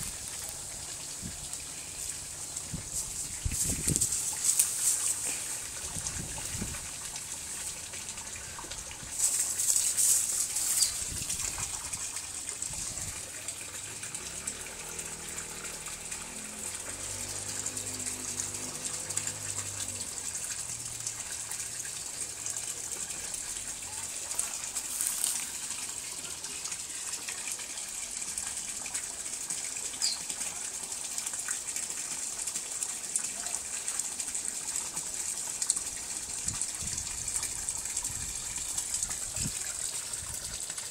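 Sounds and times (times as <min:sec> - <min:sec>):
running water hiss: 0:00.0 - 0:40.9.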